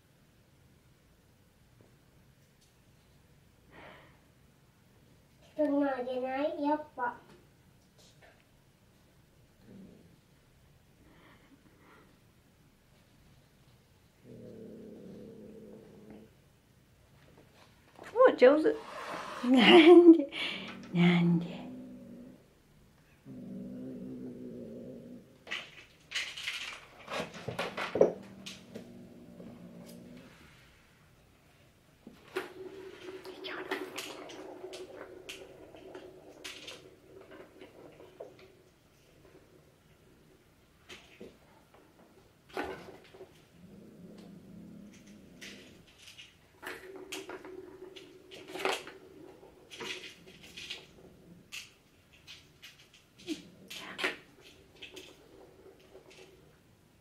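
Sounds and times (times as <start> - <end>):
cat growling: 9.6 - 10.4, 14.2 - 16.4, 18.8 - 25.8, 27.1 - 30.7, 32.2 - 40.4, 42.0 - 56.7
cat hissing and spitting: 18.8 - 19.7.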